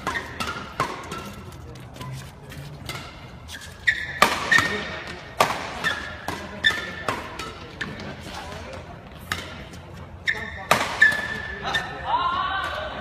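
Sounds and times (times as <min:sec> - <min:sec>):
racket striking shuttlecock: 0:00.0 - 0:02.2, 0:04.0 - 0:09.6, 0:10.7 - 0:11.4.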